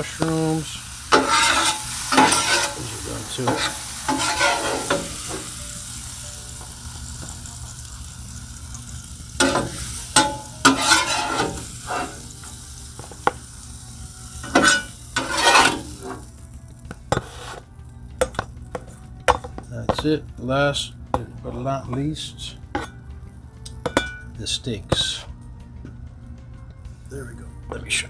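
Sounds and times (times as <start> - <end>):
food sizzling on a griddle: 0.0 - 21.0
metal spatula scraping: 1.0 - 5.6, 9.4 - 12.5, 14.4 - 16.4, 17.1 - 17.7, 22.7 - 23.0.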